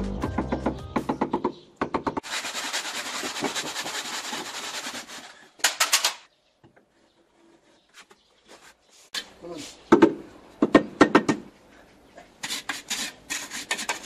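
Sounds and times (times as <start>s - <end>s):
hand saw cutting block: 2.2s - 5.4s, 12.4s - 14.0s.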